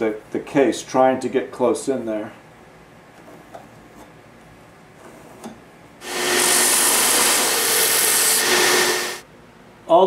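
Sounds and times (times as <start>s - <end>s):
belt sander grinding wood: 6.0s - 9.2s.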